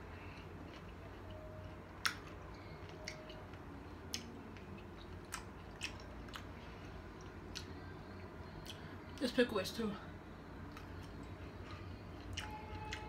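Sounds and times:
pickle crunching when chewed: 0:00.3 - 0:03.4, 0:04.1 - 0:06.5.

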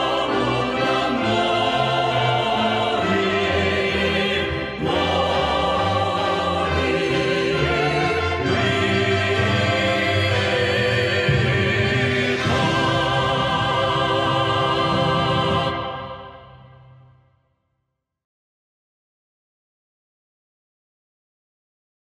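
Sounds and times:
choir singing with music: 0:00.0 - 0:17.4.

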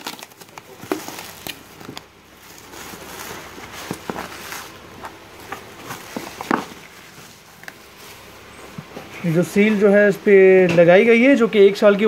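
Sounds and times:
sharp plastic crackles: 0:00.0 - 0:08.2
plastic wrap crinkling: 0:00.0 - 0:08.4.

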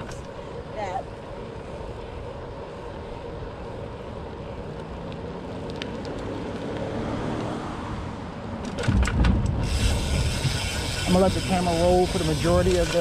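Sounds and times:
bicycle tyres rolling on pavement: 0:00.0 - 0:13.0
faint clicks: 0:04.8 - 0:07.5
wind noise on microphone: 0:08.8 - 0:13.0.

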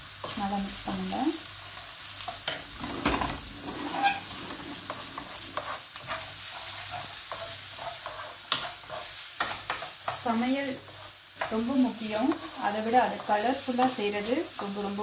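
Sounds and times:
vegetables sizzling in oil: 0:00.0 - 0:15.0
spatula scraping and tapping pan: 0:02.2 - 0:13.4.

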